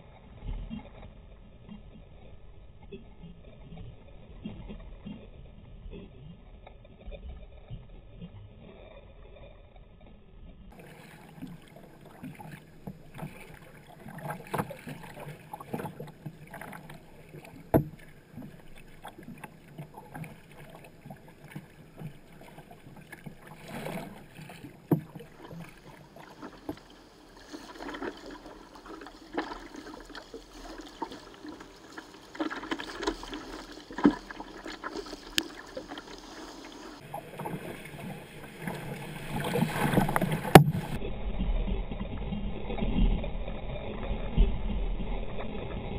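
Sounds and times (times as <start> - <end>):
water sloshing against hull: 0.0 - 45.9
paddle splashing in water: 10.7 - 41.0.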